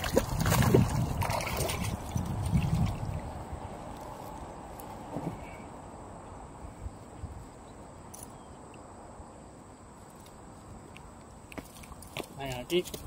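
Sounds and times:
small knocks and splashes: 0.0 - 3.2.

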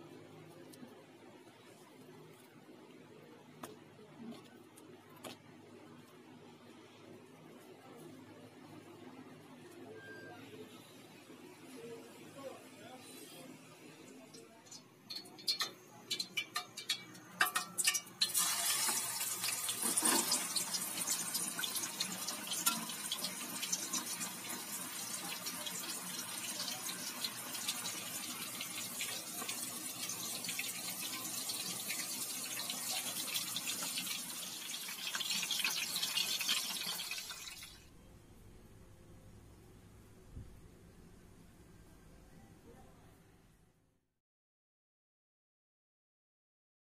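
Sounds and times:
chicken deep-frying in oil: 14.3 - 37.9.

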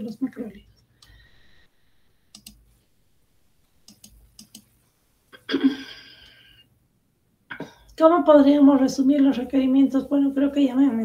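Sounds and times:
computer mouse clicks: 2.3 - 2.6, 3.8 - 4.7.

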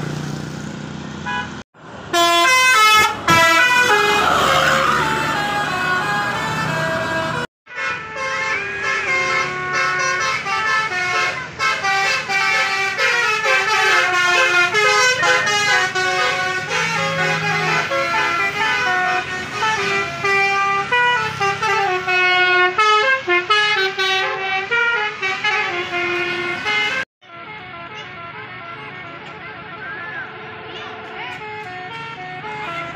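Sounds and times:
multi-tone vehicle horns playing melodies: 1.2 - 32.9.

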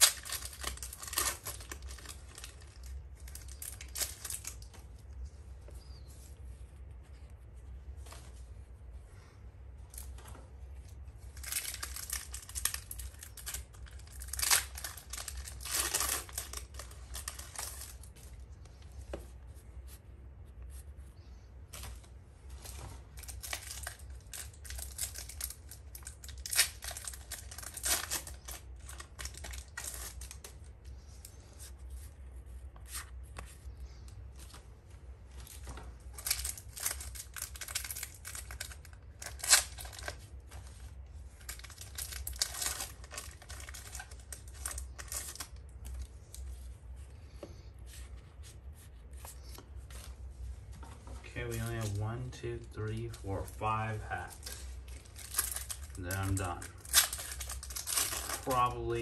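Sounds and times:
foil wrapper tearing and crinkling: 0.0 - 4.8, 11.4 - 18.1, 23.2 - 30.6, 36.2 - 46.4, 54.4 - 58.6.

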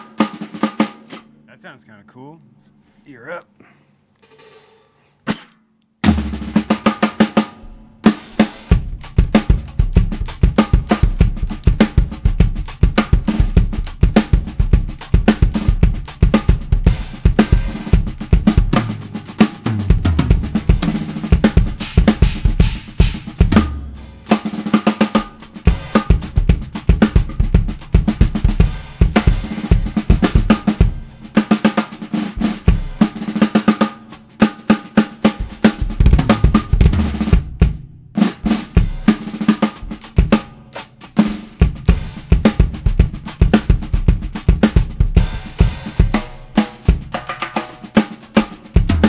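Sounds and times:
snare drum groove with rimshots: 0.0 - 2.3, 4.2 - 49.0
kick drum: 35.4 - 38.0, 41.6 - 45.7.

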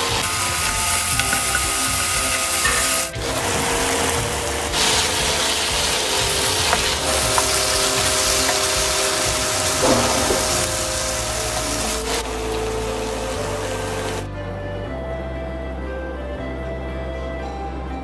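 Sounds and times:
glaze sizzling in a frying pan: 0.0 - 14.2
wooden utensil scraping a pan: 4.0 - 11.9.

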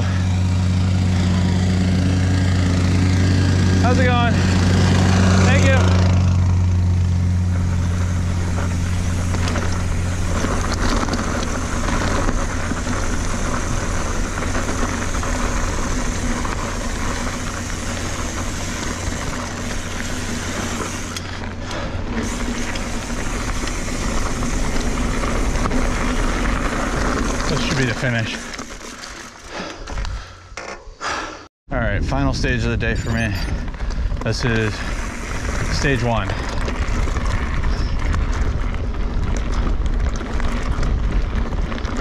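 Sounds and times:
plate compactor engine hum: 0.0 - 29.6
bike tyres rolling over dirt: 0.0 - 31.3, 31.9 - 42.0
bike knocking over bumps: 7.4 - 31.0.

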